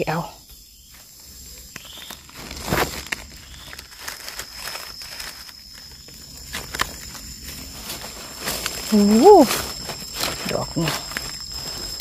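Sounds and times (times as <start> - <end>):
insect drone: 0.0 - 12.0
dry leaves crunching: 0.9 - 12.0.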